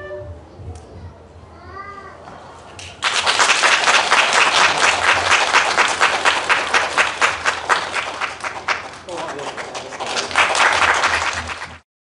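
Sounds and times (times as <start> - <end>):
audience applauding: 2.8 - 11.8.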